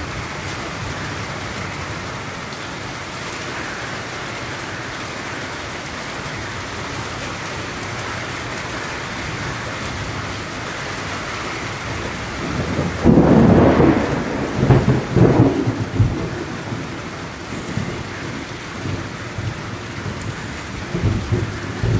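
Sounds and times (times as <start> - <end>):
rain on trees and roof: 0.0 - 21.9
thunder rumbling: 11.8 - 21.9.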